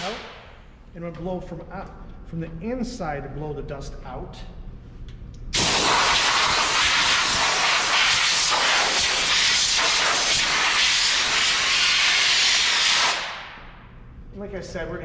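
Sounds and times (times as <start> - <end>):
compressed-air blow gun hissing: 5.6 - 13.3.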